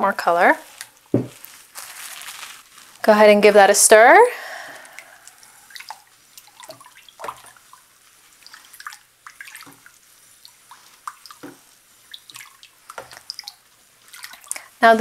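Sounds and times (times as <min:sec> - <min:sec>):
water splashing in plastic tub: 0:05.7 - 0:15.0.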